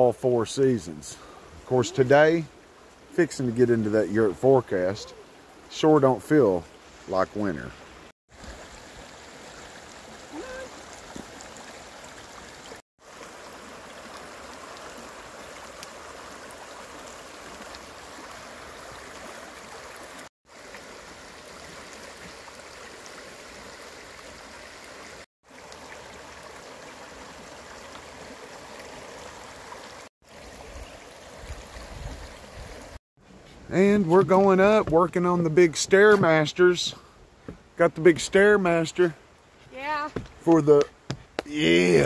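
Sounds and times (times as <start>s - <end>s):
river water rushing: 7.8s - 33.0s.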